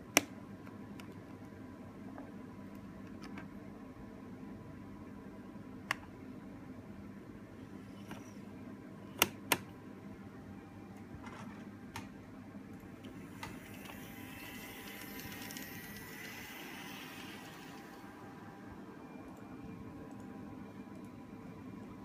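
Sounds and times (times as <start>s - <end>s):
model train motor humming: 13.6s - 17.9s.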